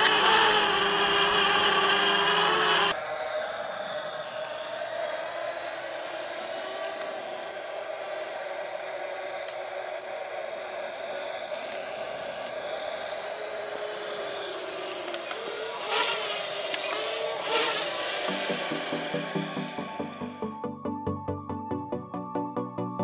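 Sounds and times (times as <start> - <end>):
quadcopter propellers whirring: 0.0 - 20.6.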